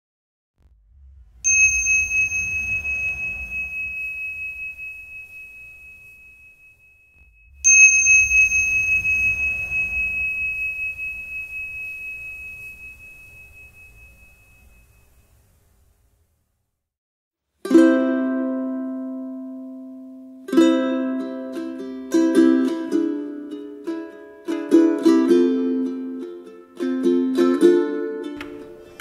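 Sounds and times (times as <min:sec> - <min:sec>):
low rumble: 0:00.6 - 0:16.2
high bell-like chime: 0:01.4 - 0:15.4.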